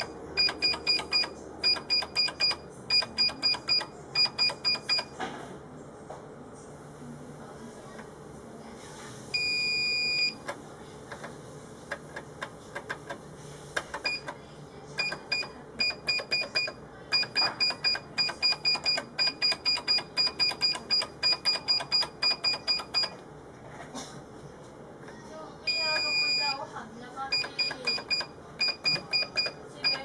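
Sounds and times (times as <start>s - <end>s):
keypad beeps: 0.0s - 5.1s, 9.4s - 10.5s, 13.9s - 14.4s, 15.0s - 23.2s, 25.7s - 26.6s, 27.3s - 30.0s.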